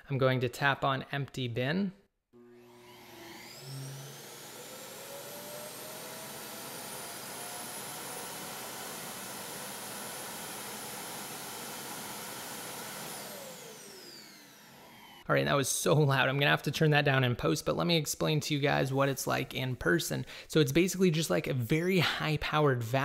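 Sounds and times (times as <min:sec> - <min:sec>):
vacuum motor whine: 0:02.4 - 0:15.2.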